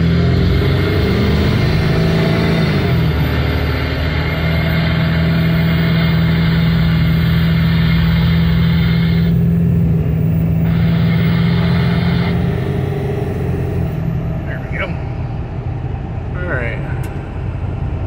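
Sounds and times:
diesel engine drone: 0.0s - 18.0s
road noise: 0.0s - 18.0s.

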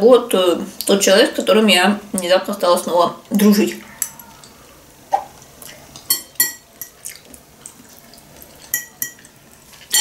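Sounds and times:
cutlery clinking on plate: 8.6s - 10.0s.

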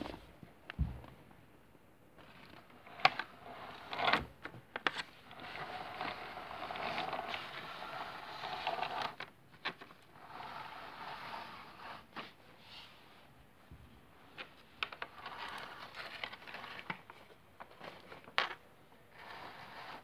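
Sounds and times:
toy train motor whirring: 5.3s - 9.2s, 10.2s - 12.0s.

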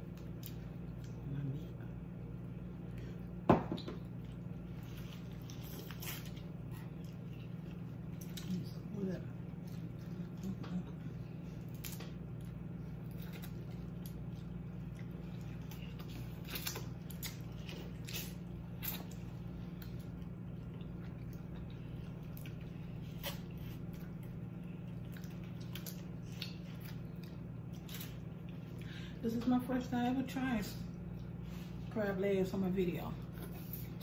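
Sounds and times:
low hum: 0.0s - 34.0s
wet chewing: 4.0s - 29.0s.

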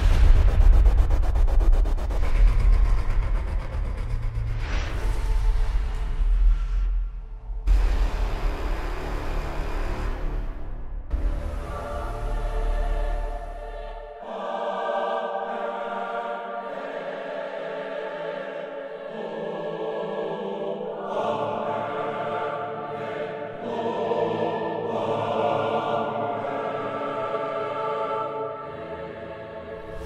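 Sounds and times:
deep bass drone: 0.0s - 14.1s
ambient choir-like music: 0.0s - 30.0s.

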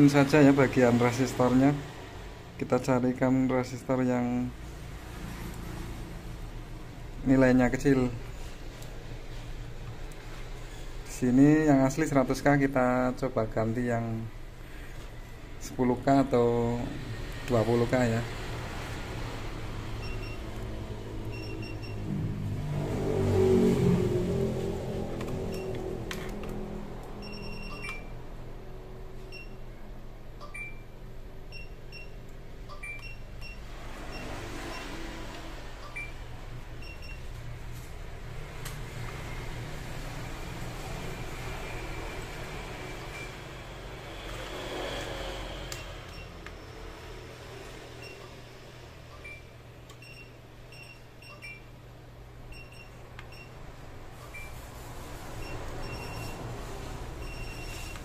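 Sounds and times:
short high multimeter beeps: 27.2s - 28.1s, 55.4s - 56.4s, 57.2s - 58.0s.

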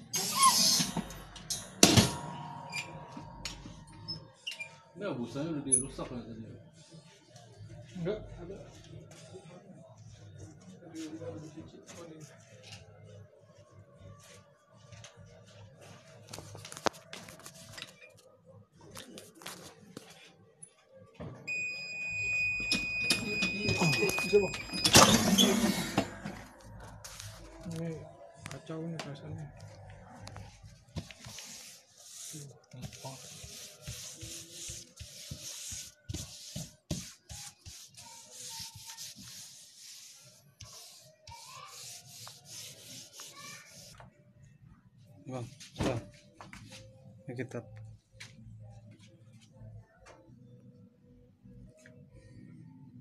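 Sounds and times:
high-pitched electronic beep: 21.5s - 25.5s
hand rubbing over paper: 31.0s - 44.0s.

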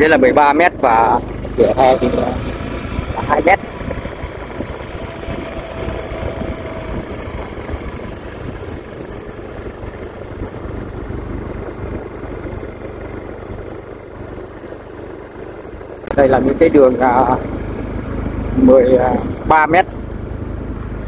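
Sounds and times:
road rumble: 0.0s - 21.0s
vehicle engine hum: 0.0s - 21.0s
wind noise: 2.4s - 13.8s.

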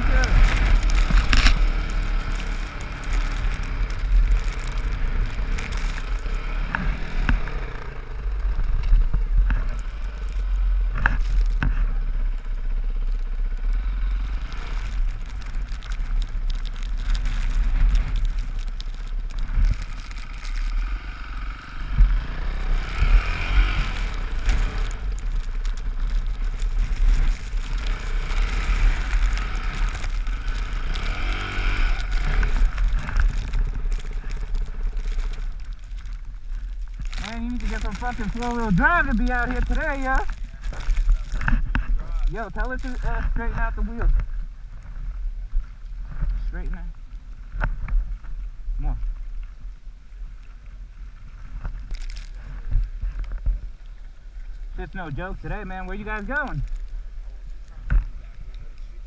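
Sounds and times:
dirt bike engine: 0.0s - 46.6s
wind rumble on microphone: 0.0s - 59.0s.

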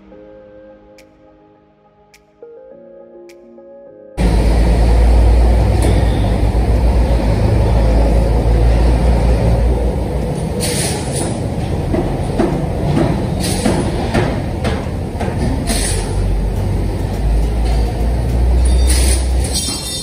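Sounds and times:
workshop low rumble: 4.2s - 20.0s.

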